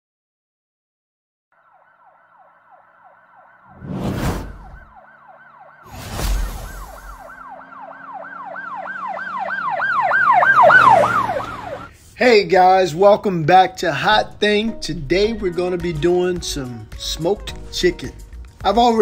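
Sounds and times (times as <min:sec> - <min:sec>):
siren yelping: 0:01.6 - 0:11.9
deep whooshing booms: 0:03.7 - 0:04.9.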